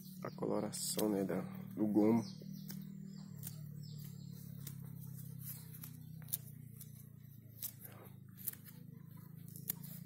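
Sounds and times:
steady low hum: 0:00.0 - 0:10.0
peel tearing crackles: 0:02.6 - 0:10.0
peel snapping: 0:05.5 - 0:08.8.

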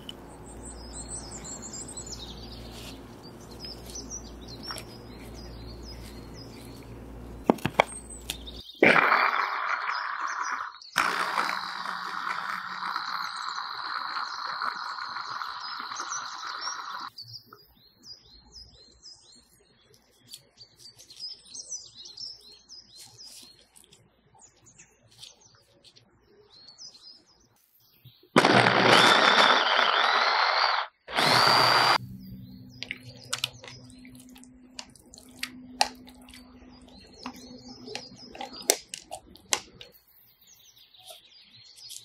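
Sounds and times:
electric mini chopper running: 0:11.0 - 0:17.1, 0:28.4 - 0:32.0.

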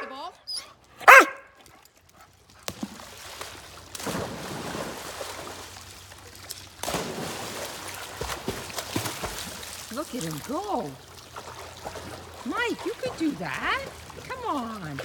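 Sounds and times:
pool water splashing: 0:00.0 - 0:01.8, 0:02.4 - 0:15.0
dog leaping into pool: 0:02.7 - 0:05.8, 0:06.8 - 0:14.2.

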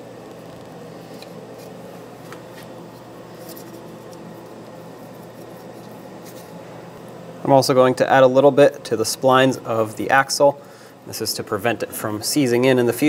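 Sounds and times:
low shop hum: 0:00.0 - 0:13.0.

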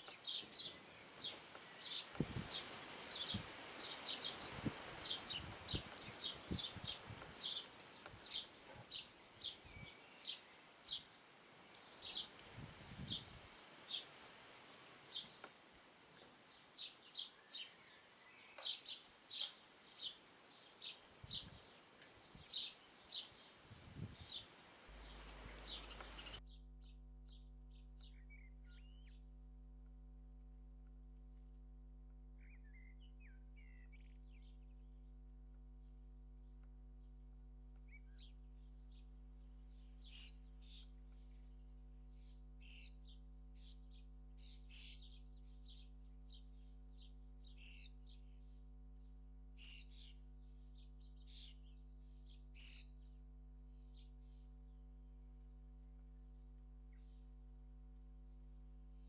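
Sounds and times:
bird chicks chirping: 0:24.0 - 0:26.4.

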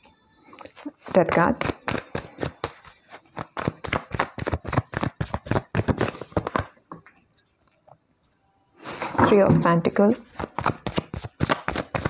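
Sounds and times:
cards being shuffled: 0:00.6 - 0:06.8, 0:10.2 - 0:12.0.

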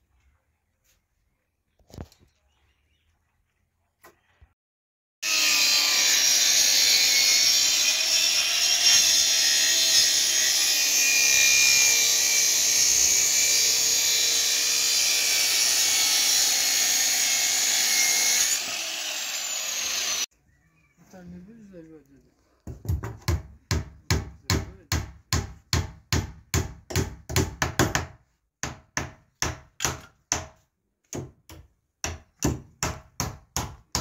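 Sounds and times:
circular saw cutting wood: 0:05.2 - 0:20.3.

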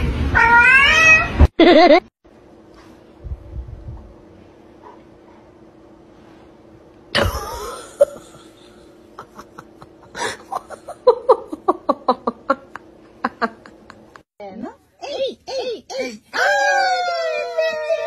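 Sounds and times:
person laughing hard: 0:01.6 - 0:02.1, 0:07.2 - 0:14.2.

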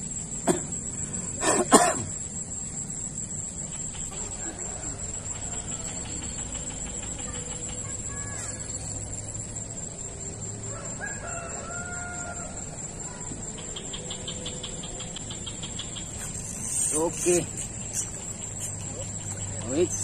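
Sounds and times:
insects droning: 0:00.0 - 0:20.0
rooster crowing: 0:04.1 - 0:07.4, 0:10.4 - 0:13.0.

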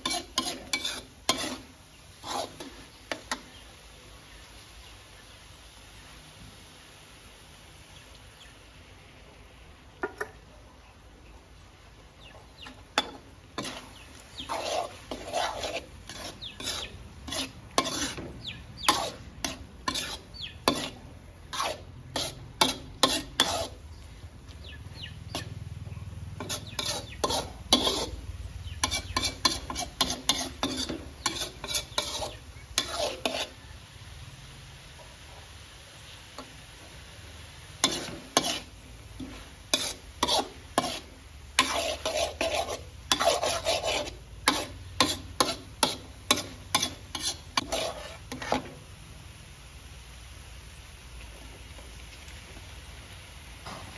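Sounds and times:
metal spatula scraping a wok: 0:00.0 - 0:03.6, 0:12.7 - 0:23.8, 0:25.0 - 0:33.6, 0:37.8 - 0:48.8
frying sizzle: 0:00.0 - 0:53.9.

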